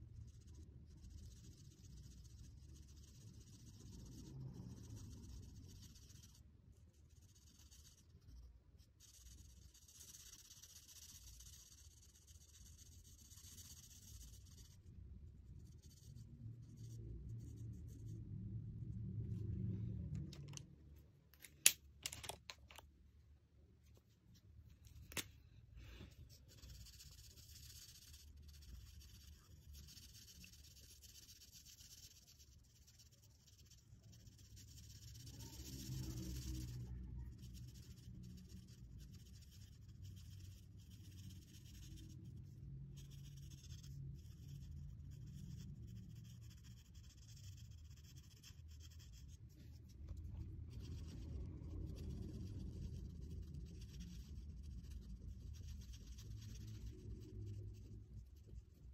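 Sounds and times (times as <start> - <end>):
marker scratching on paper: 0.3 - 14.9, 15.5 - 18.2, 25.8 - 58.9.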